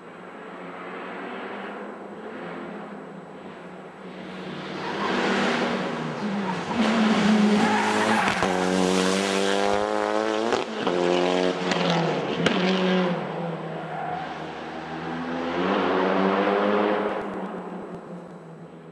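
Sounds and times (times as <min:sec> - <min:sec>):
rally car accelerating past: 0:04.4 - 0:13.2, 0:14.7 - 0:17.3.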